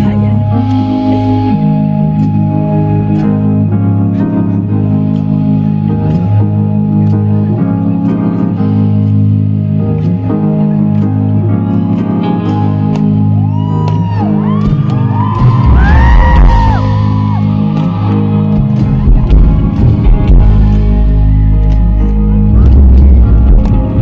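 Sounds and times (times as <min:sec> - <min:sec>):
deep bass line: 0:00.0 - 0:24.0
live rock band playing: 0:00.0 - 0:24.0.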